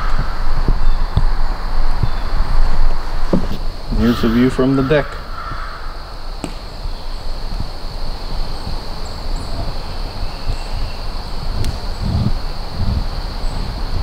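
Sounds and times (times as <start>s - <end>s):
high-pitched insect drone: 0.0s - 14.0s
wind rumble on microphone: 0.0s - 14.0s
low thumps: 0.2s - 4.1s.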